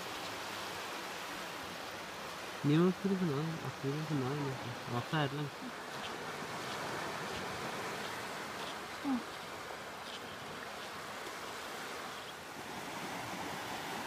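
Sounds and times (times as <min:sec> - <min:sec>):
seawater washing over sand: 0:00.0 - 0:14.0.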